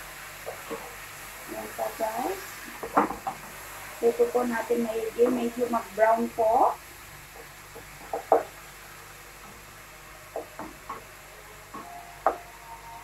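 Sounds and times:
faint frying sizzle: 0:00.0 - 0:13.0
wooden spatula knocking on pan: 0:02.8 - 0:03.4, 0:07.4 - 0:08.6, 0:10.3 - 0:11.0.

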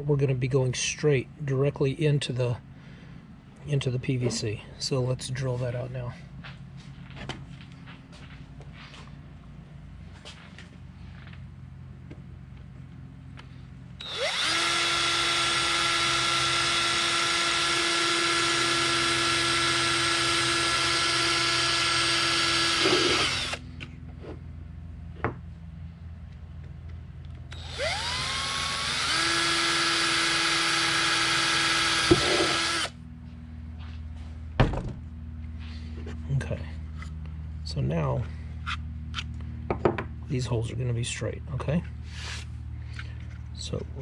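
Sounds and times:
cordless drill whining: 0:14.0 - 0:23.6, 0:27.5 - 0:33.0.

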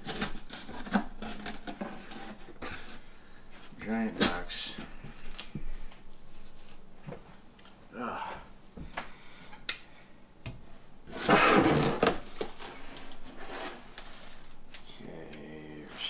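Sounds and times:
loud scraping rustle: 0:11.1 - 0:14.5.

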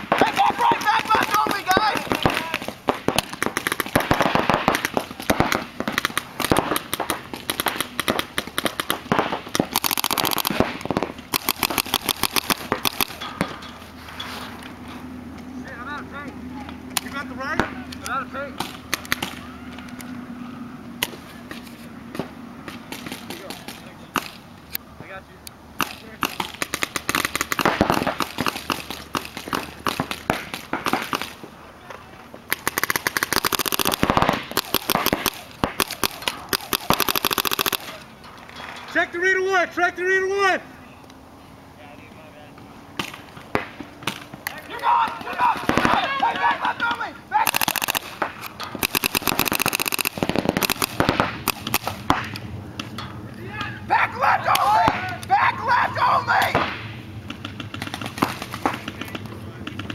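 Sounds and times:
paintball markers firing: 0:00.0 - 0:13.6, 0:16.9 - 0:20.1, 0:21.0 - 0:24.4, 0:25.8 - 0:31.4, 0:32.5 - 0:38.1, 0:43.0 - 0:53.0, 0:56.4 - 0:59.9.

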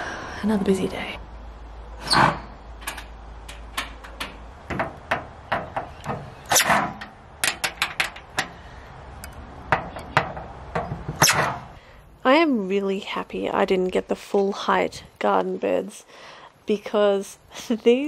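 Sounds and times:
metallic taps and clicks: 0:02.8 - 0:06.2, 0:07.0 - 0:08.6.

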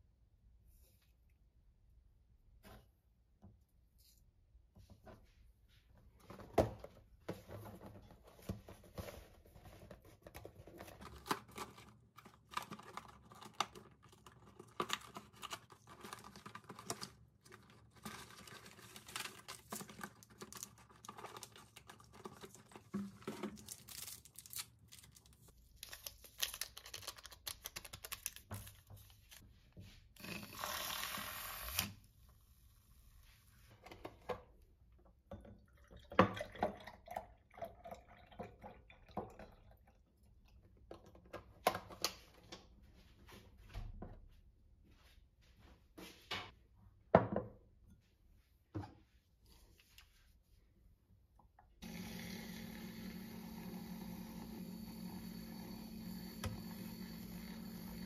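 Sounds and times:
cardboard and paper rustling: 0:07.3 - 0:29.5
milk frother whirring: 0:30.2 - 0:31.9, 0:51.8 - 0:58.0.

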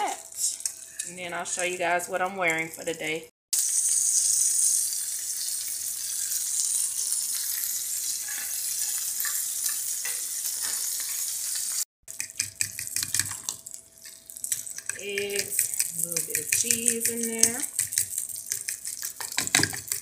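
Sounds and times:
sausages sizzling in oil: 0:00.0 - 0:20.0
fork scraping pan: 0:08.1 - 0:09.4
fork whisking eggs in bowl: 0:12.1 - 0:20.0.

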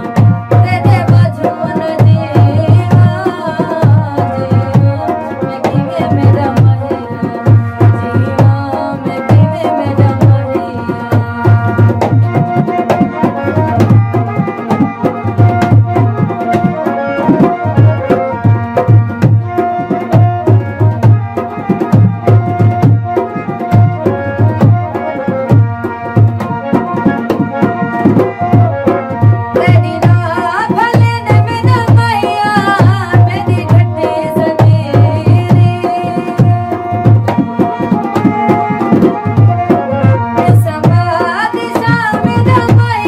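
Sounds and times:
woman singing: 0:00.0 - 0:13.6, 0:29.2 - 0:43.0
dholak drum strokes: 0:00.0 - 0:43.0
harmonium chords: 0:00.0 - 0:43.0.

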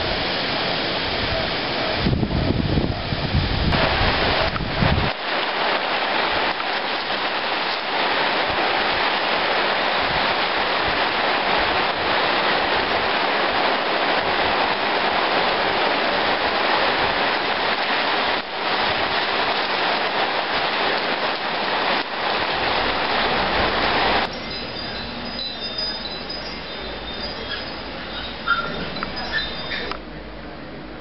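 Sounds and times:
water streaming off a tarp: 0:00.0 - 0:24.4
gusty wind: 0:00.0 - 0:31.0
heavy rain pouring: 0:00.0 - 0:31.0.

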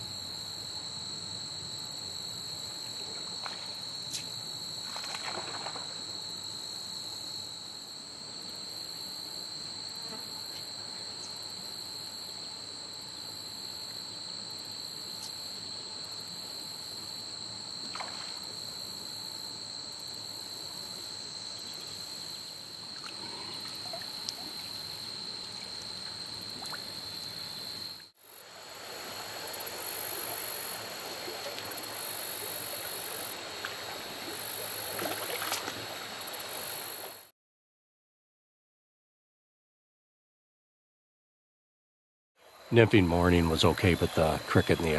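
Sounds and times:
high pulsing insect buzz: 0:00.0 - 0:37.3
insect trill: 0:00.0 - 0:37.3, 0:42.4 - 0:44.9
creek water trickling: 0:22.8 - 0:27.3, 0:28.2 - 0:37.1.

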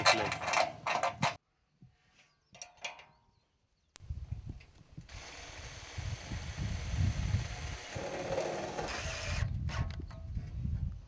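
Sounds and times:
high-pitched whine: 0:04.0 - 0:08.9.

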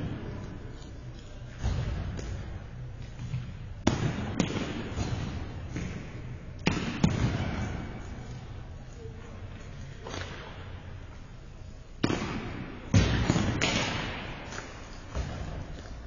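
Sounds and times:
steady arena hum: 0:00.0 - 0:16.0
balls hit with sticks: 0:01.5 - 0:08.1, 0:12.0 - 0:16.0.

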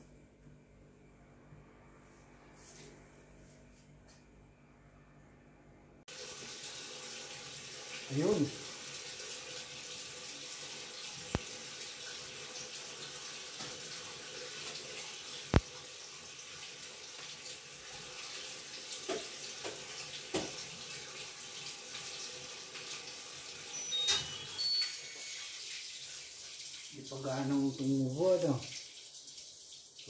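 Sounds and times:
faint hum: 0:00.0 - 0:06.0.

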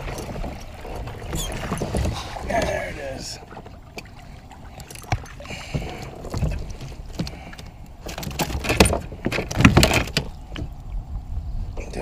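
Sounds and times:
knocks against a kayak: 0:08.1 - 0:10.7.

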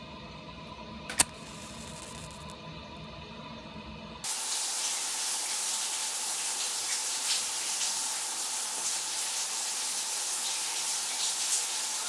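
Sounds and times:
shower water spray hissing: 0:01.1 - 0:02.5, 0:04.2 - 0:12.0.

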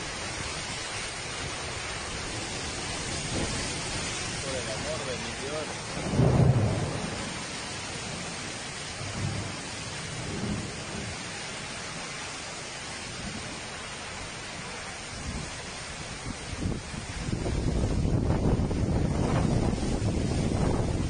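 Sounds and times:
heavy rain hiss: 0:00.0 - 0:21.0
storm wind gusts: 0:00.0 - 0:21.0
low rumbling surges: 0:01.4 - 0:08.3.

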